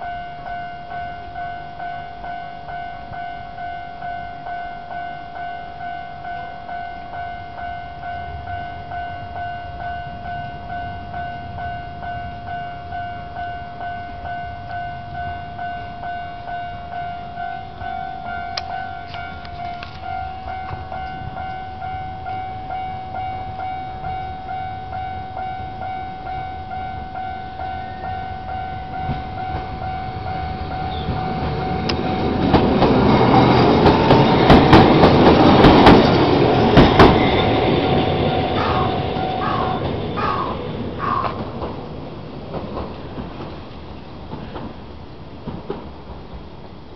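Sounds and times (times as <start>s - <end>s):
level crossing warning bell ringing: 0.0s - 41.4s
train rumble: 0.0s - 46.9s.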